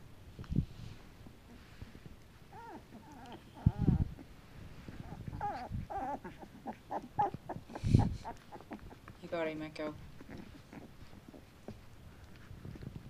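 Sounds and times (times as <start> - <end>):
puppies squeaking and whimpering: 2.5 - 9.2, 10.0 - 12.0.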